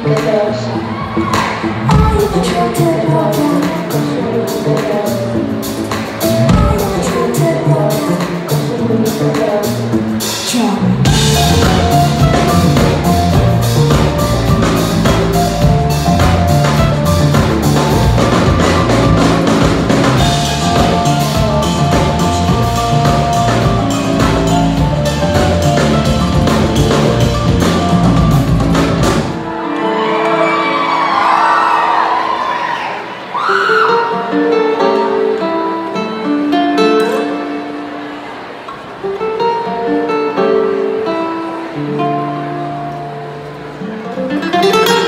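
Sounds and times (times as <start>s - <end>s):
bass guitar: 0.0s - 29.5s
drum kit beat: 0.0s - 29.5s
electric guitar: 0.0s - 31.7s.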